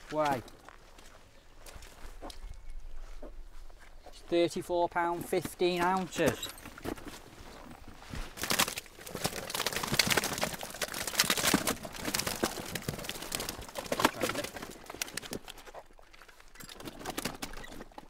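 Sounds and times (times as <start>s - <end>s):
wet fish slapping and splashing: 8.3s - 16.3s.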